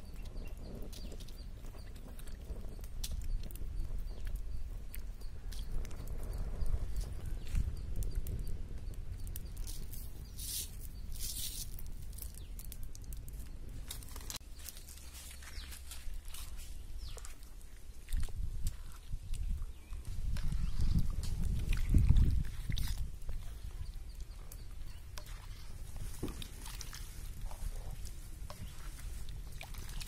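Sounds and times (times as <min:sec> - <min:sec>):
salt hissing patter: 0:09.7 - 0:12.5
ladle stirring soup in metal pot: 0:21.8 - 0:30.0.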